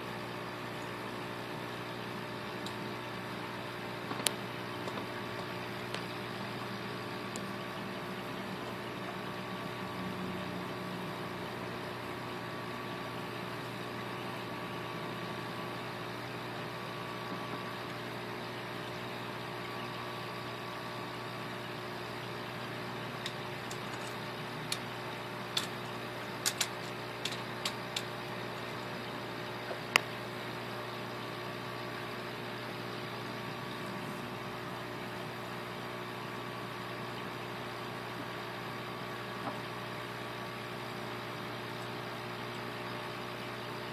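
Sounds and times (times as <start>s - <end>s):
aquarium equipment humming: 0.0s - 43.9s
sharp clicks: 25.5s - 28.1s.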